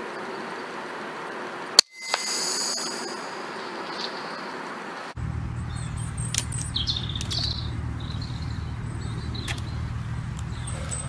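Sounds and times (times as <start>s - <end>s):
small birds chirping: 2.7s - 11.0s
steady low rumble: 5.1s - 11.0s.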